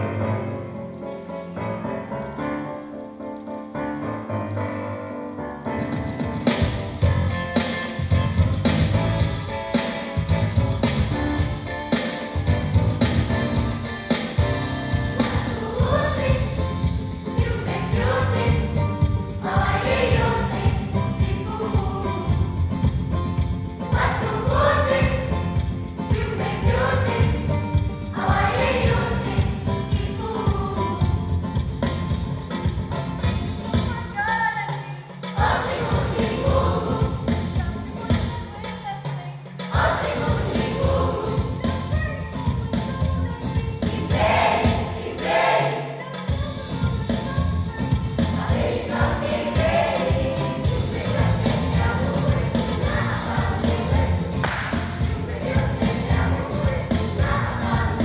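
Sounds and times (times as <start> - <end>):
children's choir singing: 15.2 - 22.7, 23.8 - 31.4, 35.3 - 38.3, 39.6 - 42.7, 43.4 - 46.7, 47.4 - 58.0.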